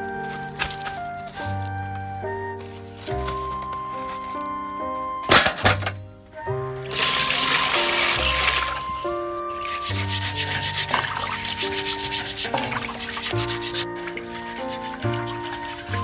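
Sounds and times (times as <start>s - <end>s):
background music: 0.0s - 16.0s
metal scouring pad scrubbing: 6.9s - 9.0s, 9.6s - 16.0s.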